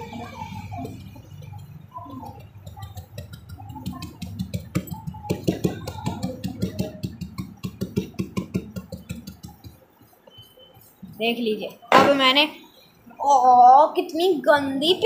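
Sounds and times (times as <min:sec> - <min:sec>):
paintbrush tapping on paper: 0:01.3 - 0:10.5.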